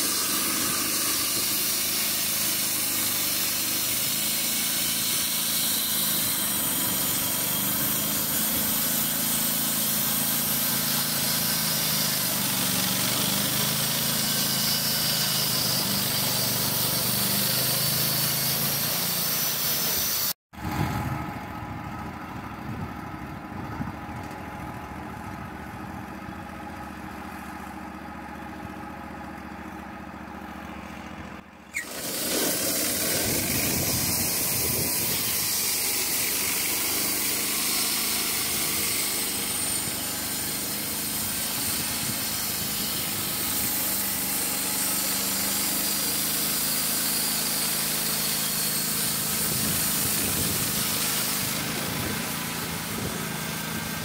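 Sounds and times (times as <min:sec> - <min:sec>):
band blade sawing log: 0:00.0 - 0:20.4, 0:31.7 - 0:54.0
sawmill engine running: 0:00.0 - 0:54.0.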